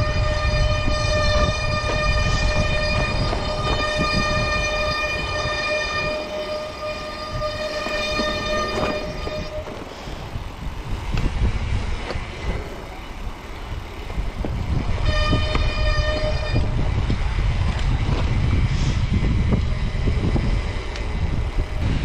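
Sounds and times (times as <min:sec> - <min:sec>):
disc brakes squealing: 0:00.0 - 0:10.6
wind buffeting microphone: 0:00.0 - 0:22.0.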